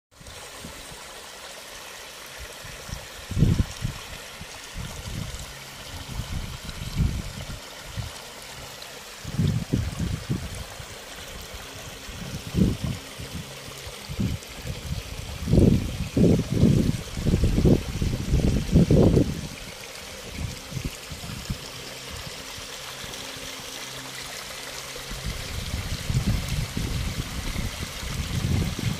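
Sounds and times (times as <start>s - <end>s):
irrigation water running: 0.1s - 28.9s
wind buffeting microphone: 2.5s - 8.2s, 9.2s - 22.4s, 25.1s - 28.9s.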